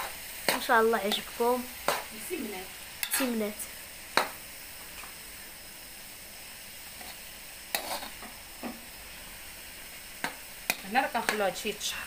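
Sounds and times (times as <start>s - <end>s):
spoon scraping a wok: 0.0s - 2.2s, 2.9s - 3.4s, 6.9s - 8.9s, 10.2s - 11.6s
food sizzling in hot oil: 0.0s - 12.0s.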